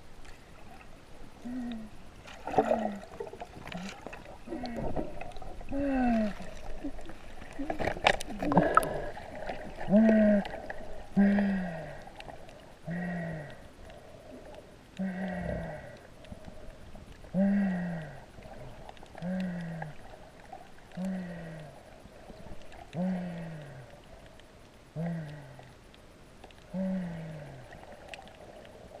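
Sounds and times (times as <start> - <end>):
person moaning underwater: 1.4 - 13.8, 15.0 - 16.1, 17.3 - 20.2, 20.9 - 21.8, 22.9 - 23.9, 25.0 - 25.7, 26.7 - 27.8.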